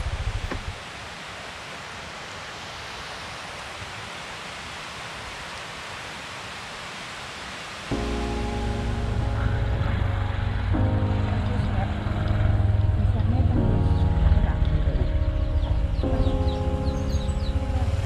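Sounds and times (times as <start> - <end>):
steady outdoor hiss: 0.0 - 18.0
low pulsing rumble: 8.0 - 18.0.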